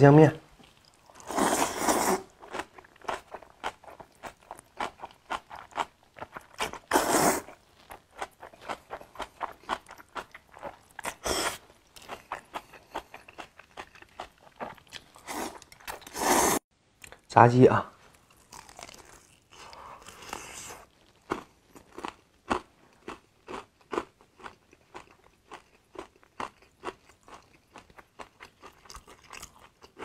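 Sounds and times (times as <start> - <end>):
loud noodle slurps: 1.2 - 2.4, 6.7 - 7.6, 15.2 - 16.6.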